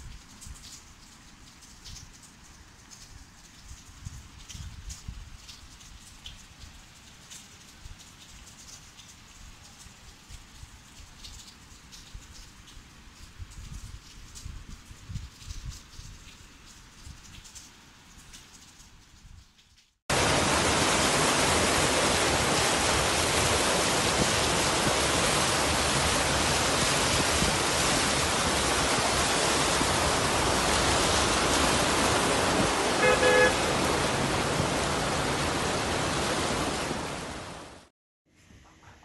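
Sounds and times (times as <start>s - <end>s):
heavy rain rushing: 20.1s - 37.9s
car horn toot: 33.0s - 33.8s.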